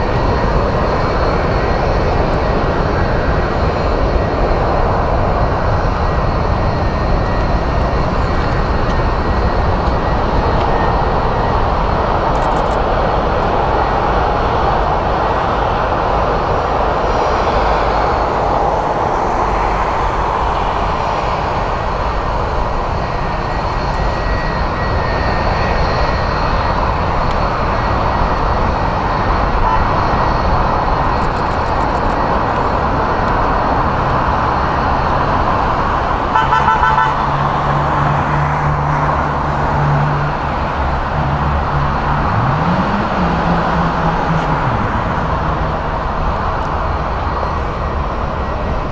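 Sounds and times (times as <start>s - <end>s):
jet engine roar: 0.0s - 48.9s
low horn-like tone: 29.6s - 30.0s.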